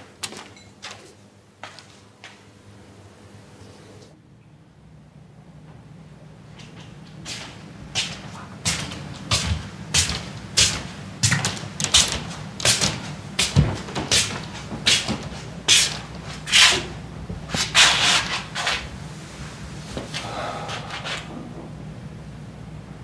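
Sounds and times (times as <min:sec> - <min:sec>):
low steady hum: 0:02.5 - 0:23.0
footsteps on hard floor: 0:06.6 - 0:16.5.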